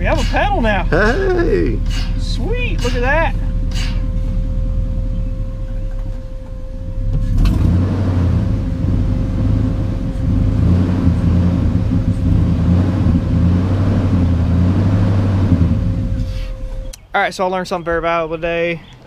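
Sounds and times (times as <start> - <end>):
pickup engine rumbling: 0.0 - 19.0.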